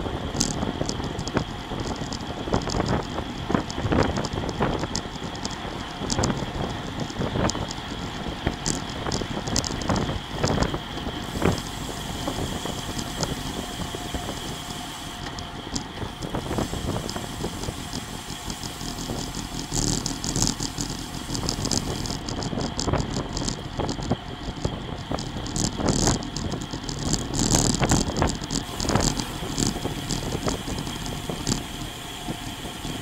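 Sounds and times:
bike rattles: 0.0s - 33.0s
freewheel ticking: 0.0s - 33.0s
tyre noise on asphalt: 0.0s - 33.0s
wind rushing over microphone: 0.0s - 33.0s.

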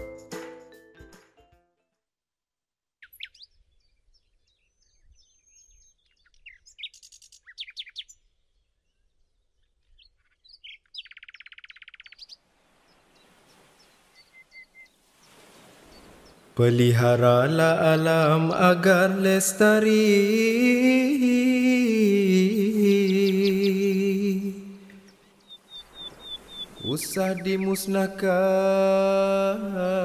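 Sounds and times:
birds chirping and whistling: 3.0s - 12.4s, 13.2s - 16.4s, 24.9s - 28.2s.

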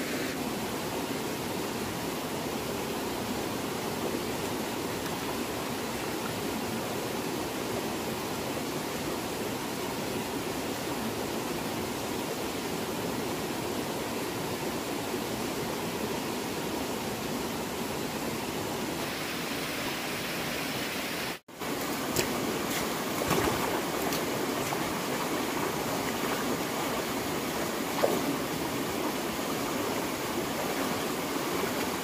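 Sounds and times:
stream running over rocks: 0.0s - 32.0s
boots splashing through water: 21.6s - 28.5s.

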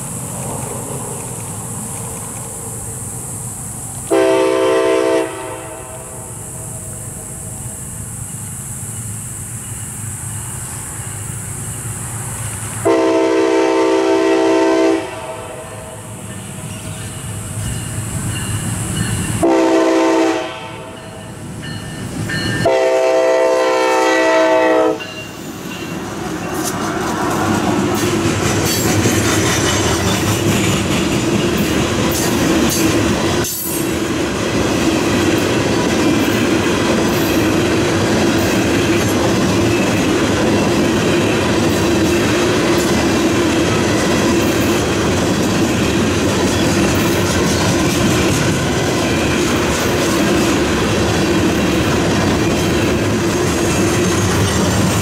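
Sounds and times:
train rumbling past: 0.0s - 55.0s
locomotive horn: 4.1s - 6.3s, 12.8s - 16.0s, 19.4s - 21.0s, 22.6s - 25.1s
wheels clacking over rail joints: 25.0s - 55.0s.

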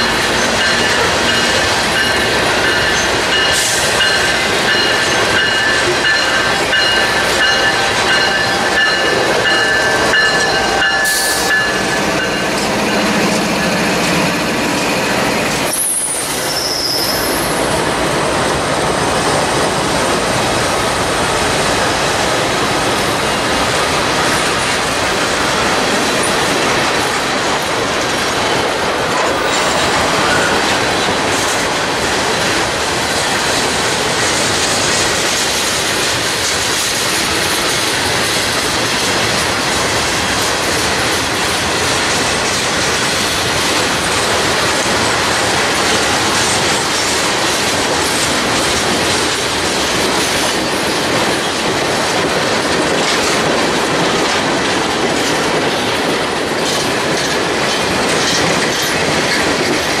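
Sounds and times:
high whine from train wheels: 0.0s - 60.0s
train wheels rumbling on rails: 0.0s - 60.0s
wheels clicking over rail joints: 19.3s - 60.0s.

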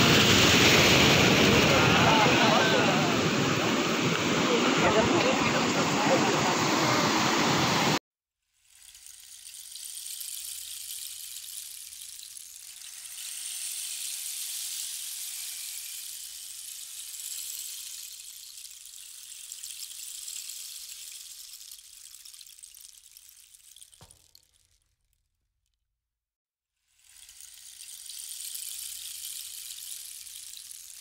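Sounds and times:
light rain hiss: 8.6s - 24.8s, 27.0s - 31.0s.

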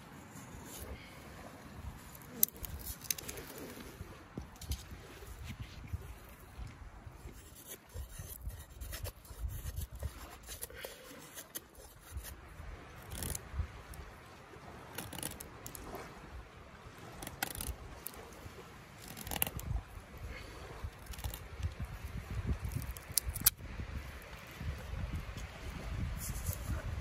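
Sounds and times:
knife scraping wooden stick: 7.3s - 12.4s, 19.0s - 19.8s.

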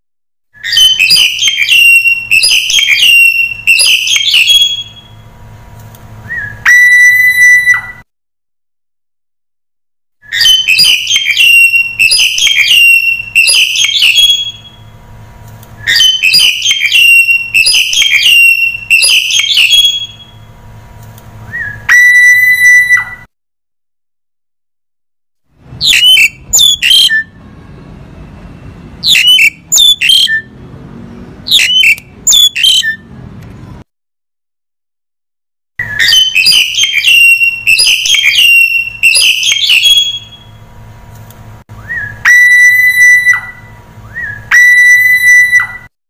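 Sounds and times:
starling chattering and whistling: 0.6s - 5.1s, 10.3s - 14.8s, 15.9s - 20.3s, 25.8s - 27.4s, 29.0s - 30.5s, 31.5s - 33.0s, 35.8s - 40.5s.

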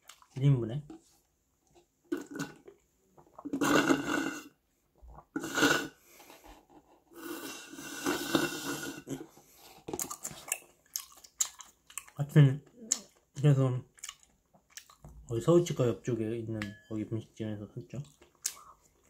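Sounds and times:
slurping through a straw: 3.4s - 4.6s, 5.2s - 6.0s, 7.1s - 10.4s.

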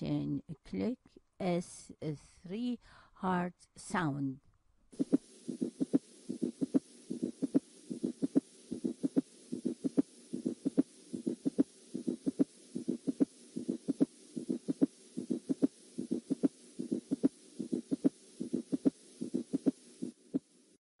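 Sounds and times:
heartbeat thuds: 5.0s - 20.4s.

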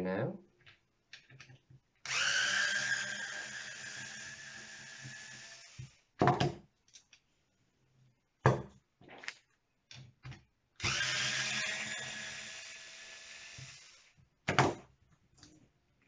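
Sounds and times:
power driver motor whining: 10.8s - 14.0s.

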